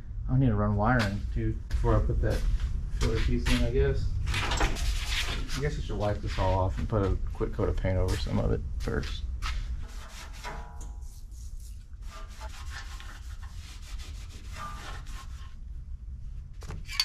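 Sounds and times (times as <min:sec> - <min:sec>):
steady low hum: 0:00.0 - 0:17.0
rag rubbing over metal: 0:09.4 - 0:15.6.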